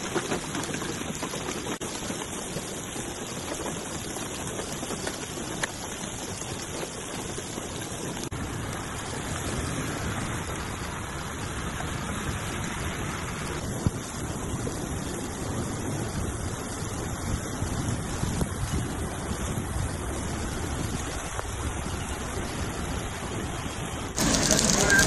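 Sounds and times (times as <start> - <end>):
heavy rain on standing water: 0.0 - 25.0
floodwater rushing: 15.2 - 25.0.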